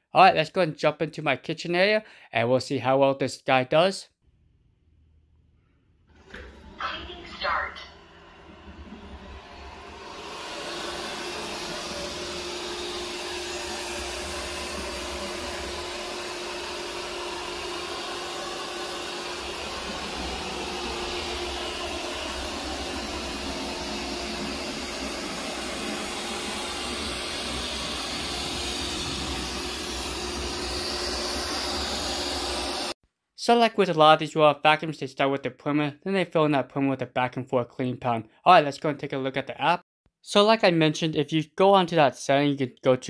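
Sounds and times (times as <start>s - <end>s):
robot vacuum whirring: 6.1s - 33.0s.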